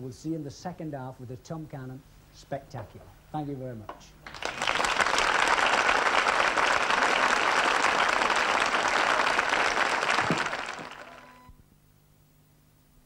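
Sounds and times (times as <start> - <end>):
audience applauding: 4.2 - 11.5.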